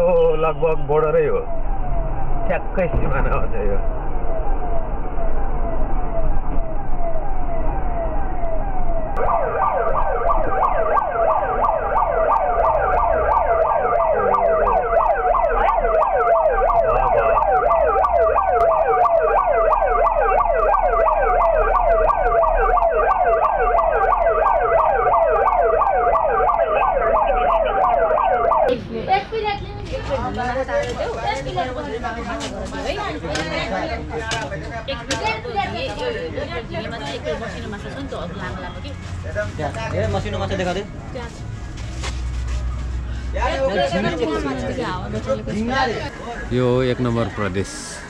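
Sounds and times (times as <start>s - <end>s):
siren-like tone sweeping down: 0.0s - 28.8s.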